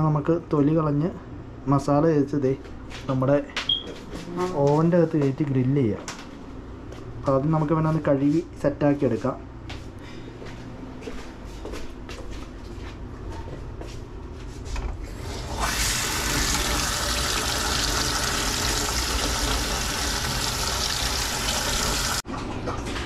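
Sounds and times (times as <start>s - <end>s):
water tap running: 15.1s - 22.2s.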